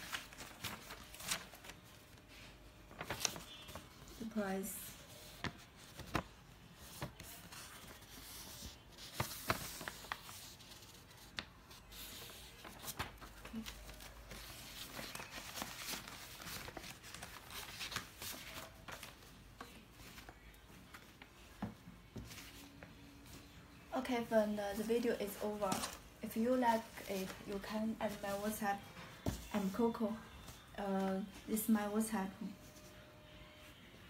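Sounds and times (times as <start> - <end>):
paper rustling: 0.0 - 21.4, 24.7 - 30.6.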